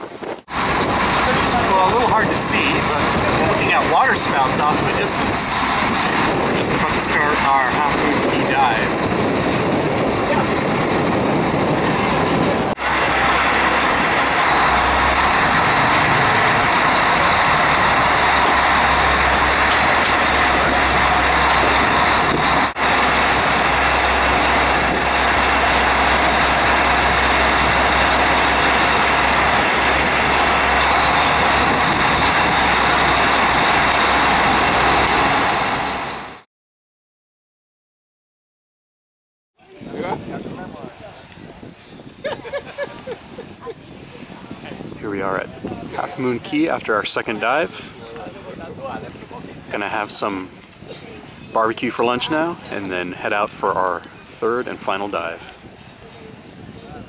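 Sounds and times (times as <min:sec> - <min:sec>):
wind: 0:00.0 - 0:36.4, 0:39.6 - 0:57.0
boat motor running: 0:00.5 - 0:36.3
rushing water: 0:00.5 - 0:36.3.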